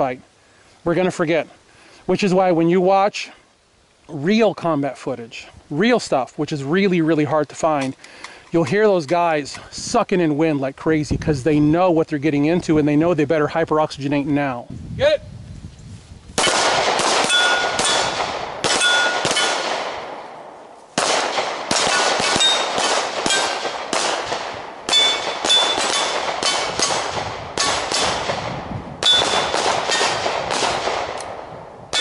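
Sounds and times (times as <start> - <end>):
rapid pistol shots: 16.4 - 20.4, 21.0 - 32.0
steel targets clanging: 17.2 - 18.1, 18.7 - 19.6, 24.9 - 27.0.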